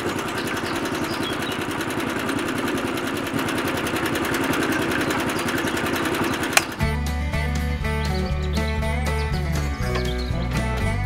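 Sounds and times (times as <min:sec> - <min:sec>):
small electric motor running: 0:00.0 - 0:06.9.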